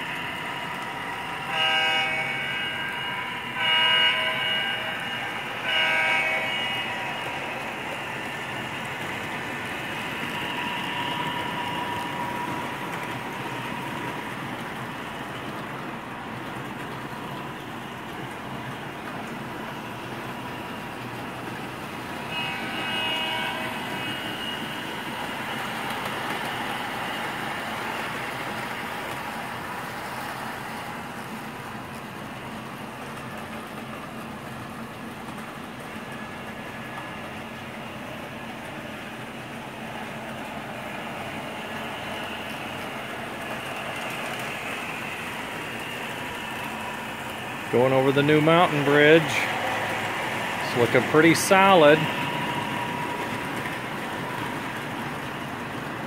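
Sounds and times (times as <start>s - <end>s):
train horn: 0.0s - 8.8s, 9.9s - 12.5s, 22.2s - 27.2s
model train wheels on rails: 0.0s - 56.0s.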